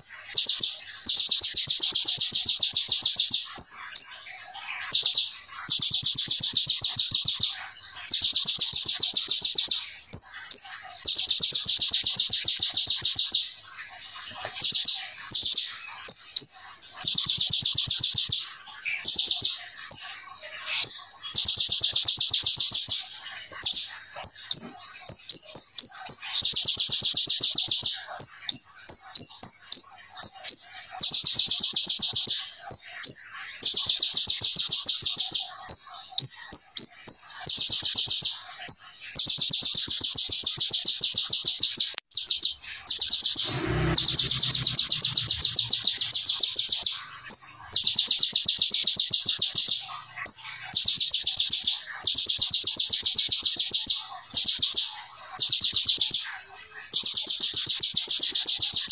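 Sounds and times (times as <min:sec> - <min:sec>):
bird sharp chirps: 0:00.0 - 0:58.9
bird buzzing trills: 0:42.8 - 0:50.4.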